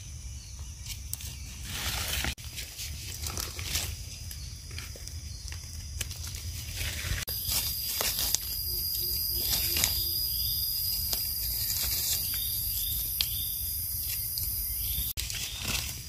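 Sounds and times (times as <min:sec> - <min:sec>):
insects droning: 0:00.0 - 0:16.0
dry leaves crackling: 0:00.8 - 0:16.0.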